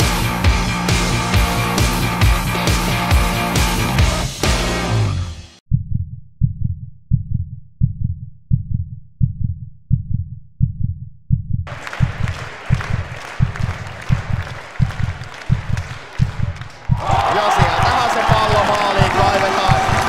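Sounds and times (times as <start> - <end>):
muffled bass drum beat: 0.0 - 5.1.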